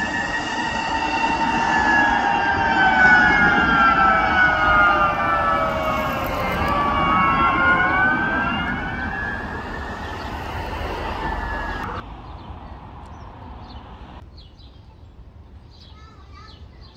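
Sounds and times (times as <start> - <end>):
sirens wailing: 0.0 - 12.0
faint road noise: 0.0 - 16.9.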